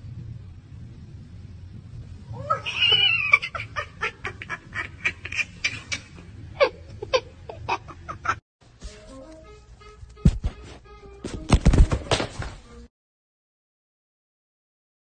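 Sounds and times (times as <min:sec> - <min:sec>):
cat yowling: 0:02.4 - 0:03.5.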